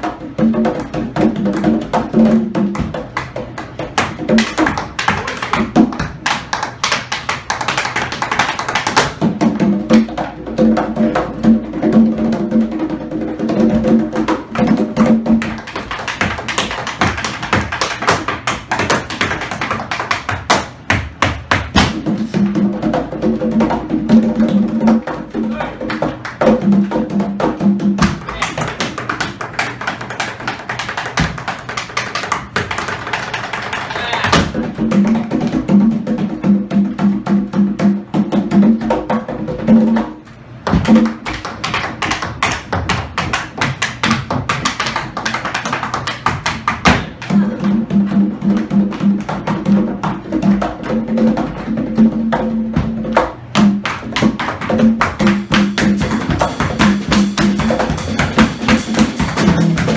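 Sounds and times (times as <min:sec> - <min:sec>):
tap shoes on hard floor: 0:00.7 - 0:09.3, 0:28.0 - 0:35.3, 0:40.6 - 0:47.4.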